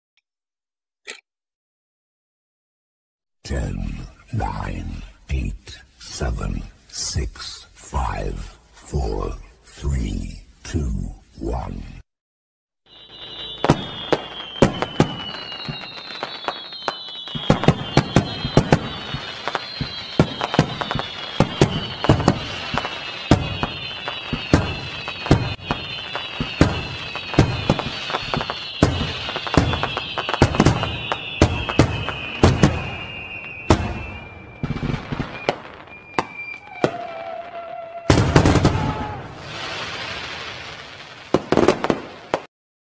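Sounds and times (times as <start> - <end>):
high descending whistle: 12.9 - 39.5
fireworks bangs and crackles: 12.9 - 42.5.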